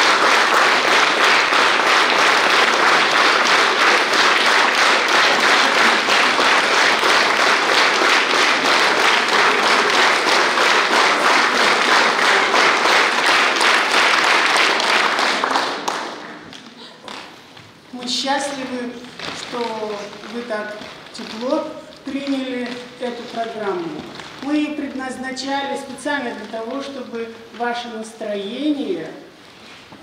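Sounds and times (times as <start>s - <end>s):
audience applauding: 0.0s - 17.4s.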